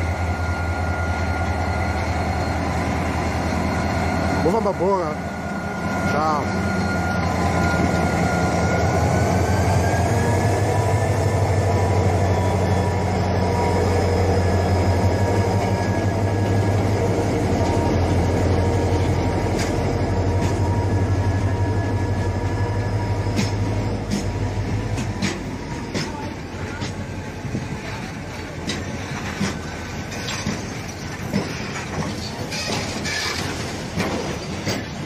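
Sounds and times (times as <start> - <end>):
locomotive engine hum: 0.0 - 35.0
train wheels rumbling: 0.0 - 35.0
wheels clicking over rail joints: 23.4 - 35.0.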